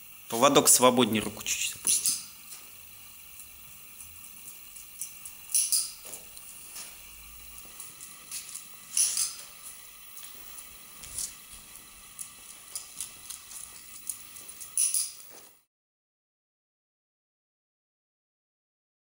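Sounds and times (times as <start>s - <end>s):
small ticks: 3.9s - 6.9s, 7.6s - 15.6s
rustling crackling bursts: 6.0s - 15.6s
footsteps on tiled floor: 6.0s - 15.7s
dog claws on tiled floor: 7.6s - 9.6s, 10.2s - 15.6s.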